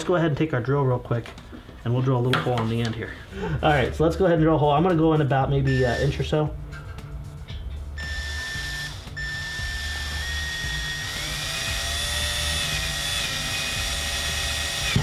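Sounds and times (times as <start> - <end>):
cordless drill whine: 8.0 - 15.0.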